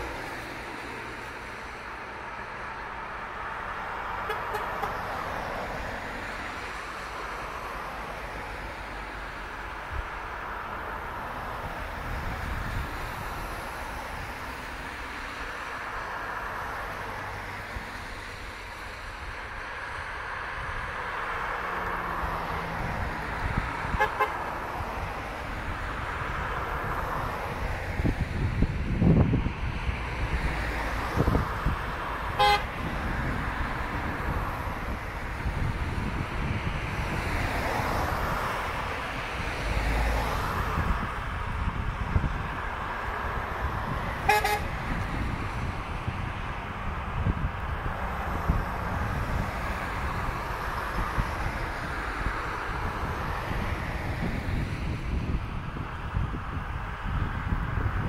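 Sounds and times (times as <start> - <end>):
cars driving on a wet road: 0.0 - 58.0
car horn toots: 4.2 - 5.0, 23.9 - 24.4, 32.4 - 32.8, 44.2 - 44.7.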